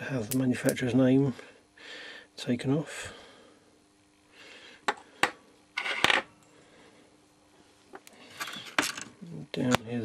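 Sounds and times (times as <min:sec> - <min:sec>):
metal parts clicking and clinking: 0:08.3 - 0:09.1.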